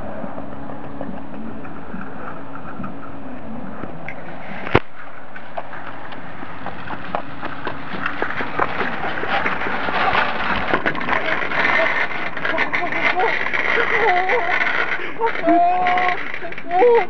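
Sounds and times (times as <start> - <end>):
shopping cart rolling on asphalt: 3.9 - 17.0
clicks and knocks: 4.1 - 17.0.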